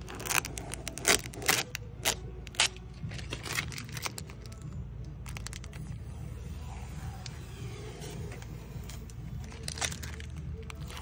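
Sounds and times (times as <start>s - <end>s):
plastic tape crackling and snapping: 0.0s - 6.1s, 8.3s - 11.0s.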